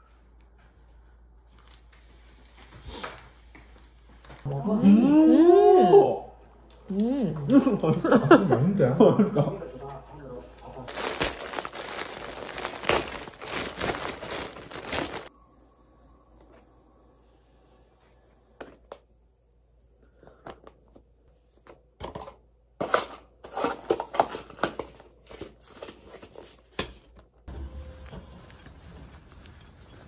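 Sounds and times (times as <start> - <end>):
plastic bag tearing: 10.9 - 15.3
plastic packaging crinkling: 10.9 - 15.3.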